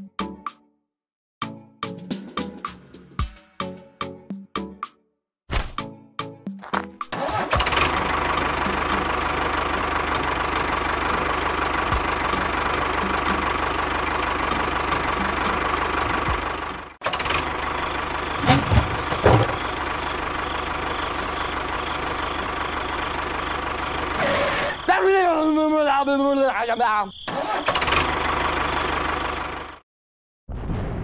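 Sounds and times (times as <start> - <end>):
tractor engine chugging: 7.2 - 24.2.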